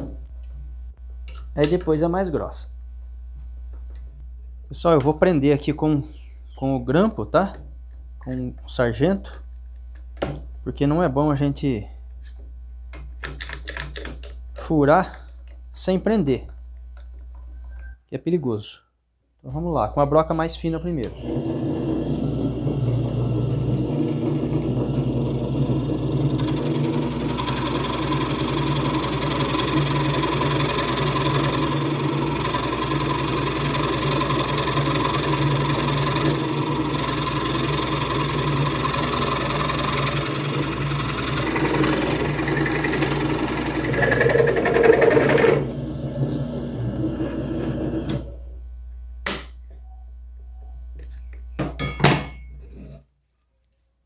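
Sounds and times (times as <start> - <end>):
drill press motor running: 21.0 - 48.4
spade bit boring into wood: 24.0 - 48.2.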